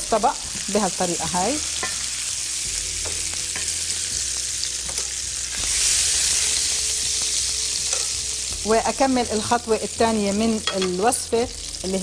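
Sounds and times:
chicken sizzling in hot oil: 0:00.0 - 0:12.0
tongs clicking against pan: 0:04.9 - 0:05.2, 0:07.9 - 0:08.2.

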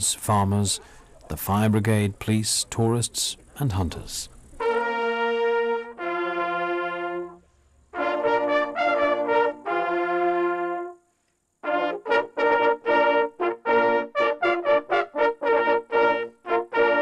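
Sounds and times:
hunting horns playing in harmony: 0:04.6 - 0:17.0.

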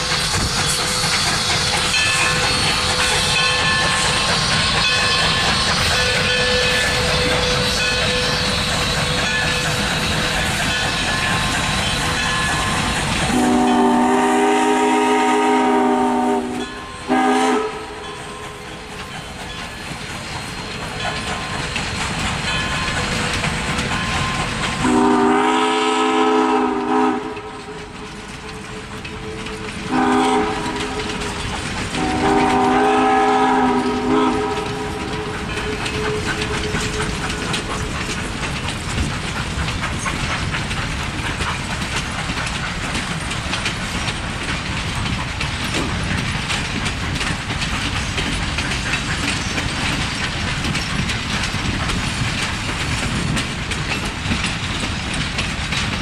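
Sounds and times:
steam locomotive whistle: 0:00.0 - 0:11.2, 0:12.1 - 0:18.5, 0:24.8 - 0:27.8, 0:28.6 - 0:31.3, 0:31.9 - 0:37.4
passenger cars rumbling and clattering: 0:26.8 - 0:56.0.

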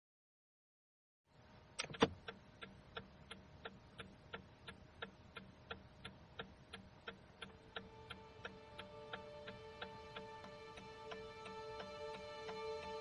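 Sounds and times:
sharp clicks: 0:01.8 - 0:12.7
steady ticking: 0:01.8 - 0:13.0.

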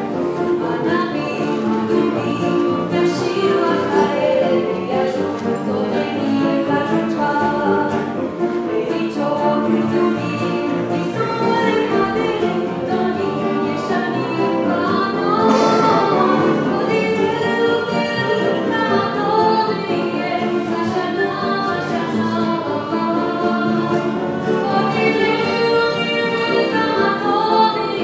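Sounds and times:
piano: 0:00.0 - 0:28.0
violin: 0:00.0 - 0:28.0
voices singing held notes: 0:15.0 - 0:19.2.

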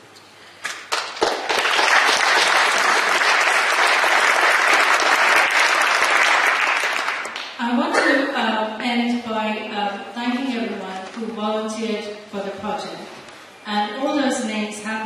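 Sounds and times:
audience applauding: 0:00.7 - 0:07.6.

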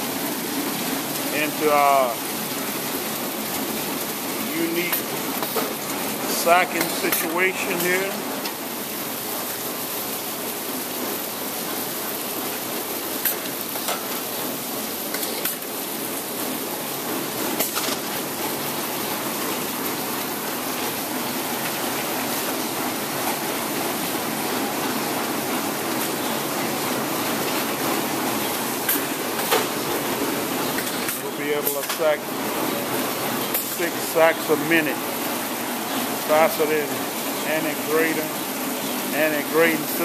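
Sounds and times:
conveyor machine running: 0:00.0 - 0:40.0.

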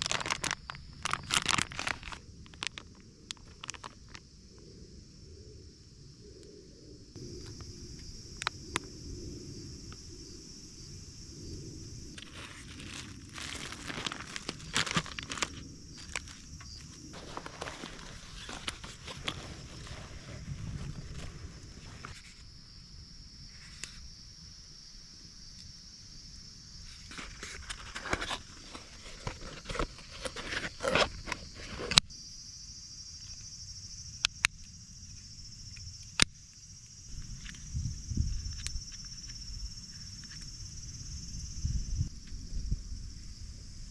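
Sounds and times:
plastic pouch crinkling: 0:00.0 - 0:04.2, 0:12.2 - 0:21.3
cardboard box rustling: 0:12.2 - 0:22.1, 0:27.1 - 0:31.9.

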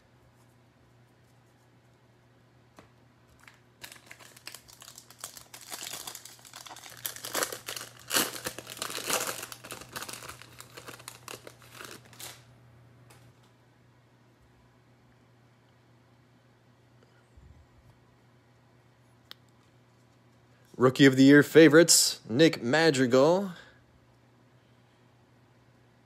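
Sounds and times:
wrapper crinkling and tearing: 0:03.3 - 0:12.5.

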